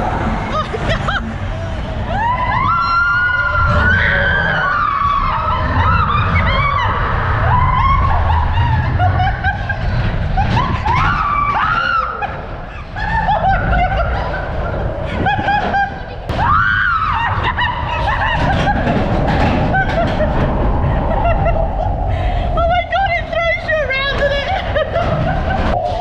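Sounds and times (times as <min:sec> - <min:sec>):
roller coaster car rumbling: 0:00.0 - 0:26.0
people laughing: 0:00.3 - 0:02.3, 0:04.8 - 0:16.3, 0:17.0 - 0:26.0
riders screaming: 0:02.0 - 0:09.5, 0:10.2 - 0:14.2.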